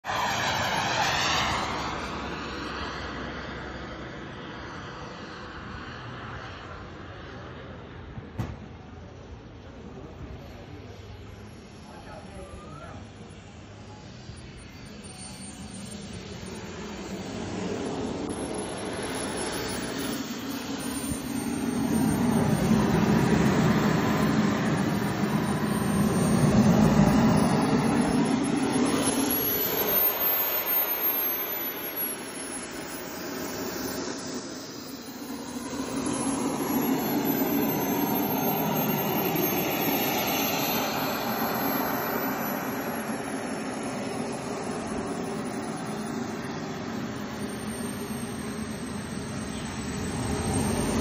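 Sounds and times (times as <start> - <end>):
rushing jet exhaust: 0.0 - 6.4, 14.4 - 51.0
model jet turbine whine: 0.0 - 51.0.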